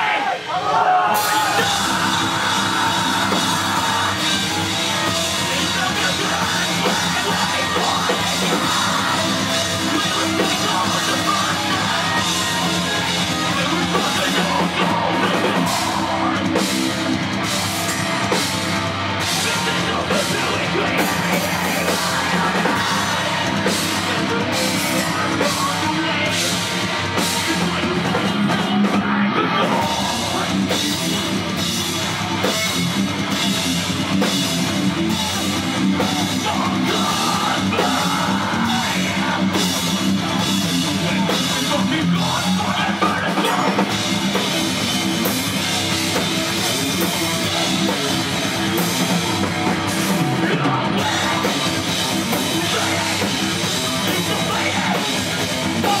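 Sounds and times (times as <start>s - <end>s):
drum kit beat: 1.1s - 56.0s
electric guitar: 1.1s - 56.0s.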